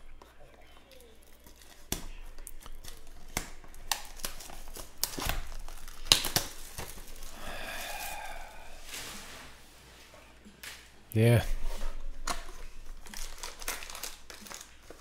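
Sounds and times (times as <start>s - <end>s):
plastic shrink-wrap crinkling and tearing: 0.6s - 8.8s, 11.9s - 15.0s.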